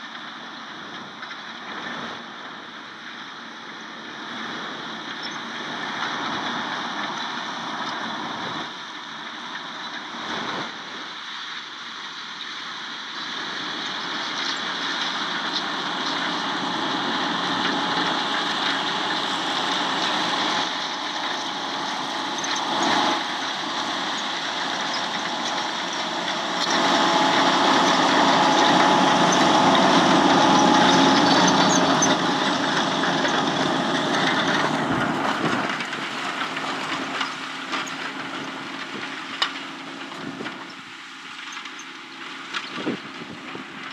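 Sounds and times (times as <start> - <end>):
tractor engine under load: 13.4 - 43.9.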